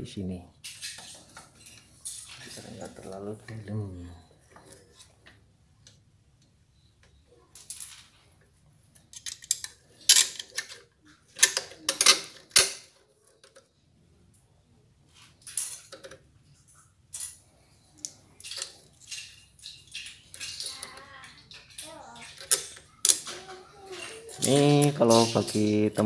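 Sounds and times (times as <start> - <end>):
metal clinking and scraping: 0.6 - 3.6, 9.0 - 13.6, 15.1 - 26.0.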